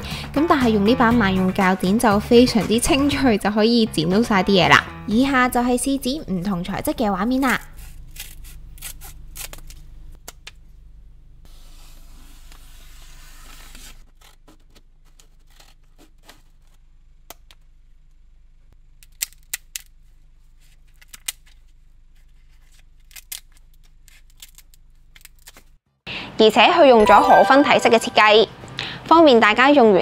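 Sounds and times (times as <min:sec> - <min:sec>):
scissors rasping cutting: 0:07.3 - 0:09.8.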